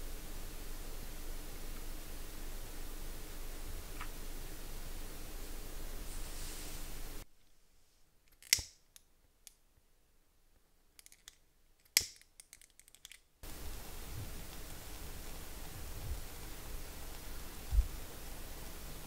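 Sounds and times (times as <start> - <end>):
steady hiss: 0.0 - 8.2, 13.4 - 19.0.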